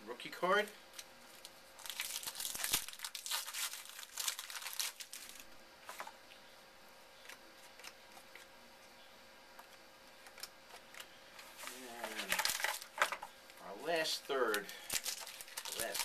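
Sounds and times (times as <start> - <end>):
wrapper tearing and crinkling: 0.9 - 6.1, 11.6 - 13.2, 14.4 - 16.0.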